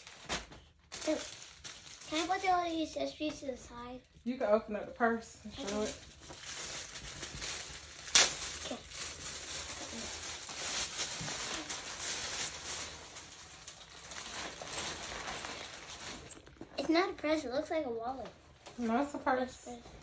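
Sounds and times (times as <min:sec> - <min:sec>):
plastic bag crinkling: 0:00.0 - 0:03.4, 0:05.5 - 0:17.7
sharp crackle: 0:05.5 - 0:16.6.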